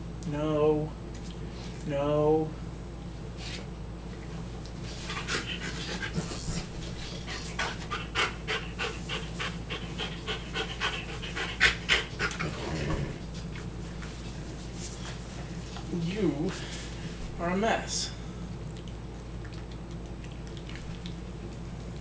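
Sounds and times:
dog panting: 4.9 - 13.6.

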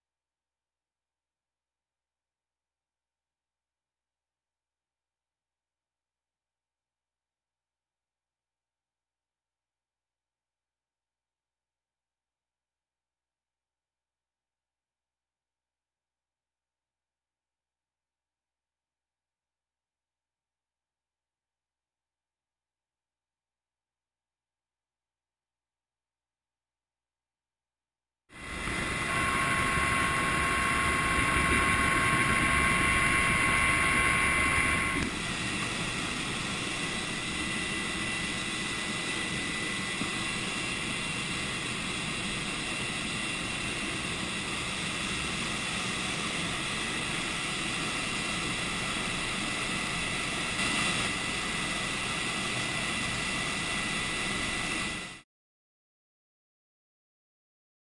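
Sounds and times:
helicopter engine and rotor: 28.3 - 55.2.

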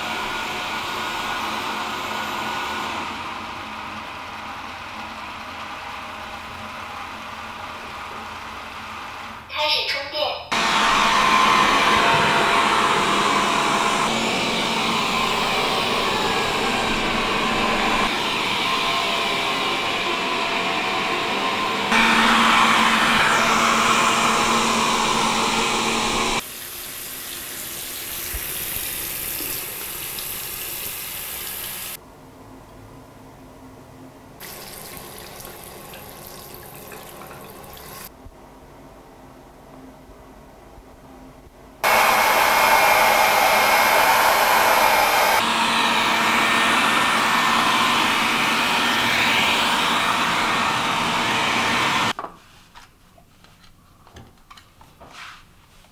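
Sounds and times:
robot vacuum suction hum: 10.5 - 26.4, 41.8 - 52.1
tap water running into sink: 26.5 - 31.9, 34.4 - 38.1.

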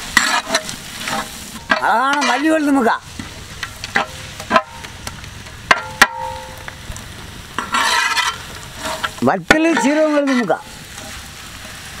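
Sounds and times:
ladle scraping pan: 0.0 - 4.9, 7.6 - 11.8
soft sizzle: 0.0 - 12.0
ladle knocking metal pan: 5.7 - 6.6.

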